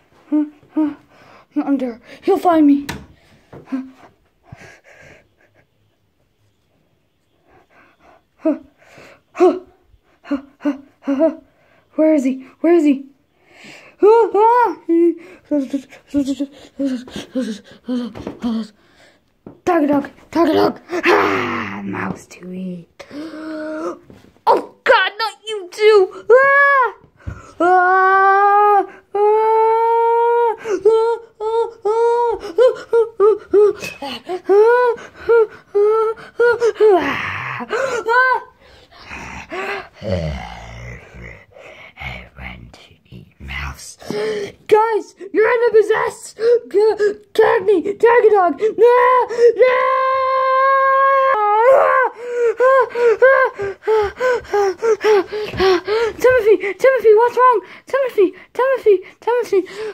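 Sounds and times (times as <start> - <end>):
high-pitched scream and gasping cries: 20.8 - 21.9, 25.8 - 41.6, 44.1 - 57.6
person crying out: 21.0 - 21.7, 48.8 - 56.4.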